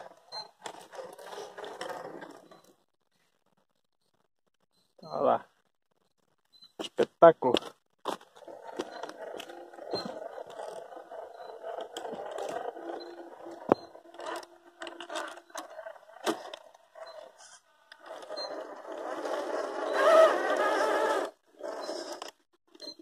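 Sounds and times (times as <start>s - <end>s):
small electric motor whining: 8.4s - 22.4s.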